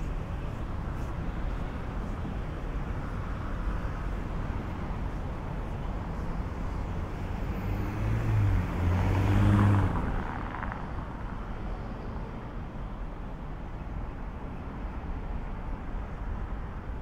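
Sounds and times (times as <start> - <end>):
distant traffic hum: 0.0 - 17.0
vehicle passing close: 7.6 - 10.7.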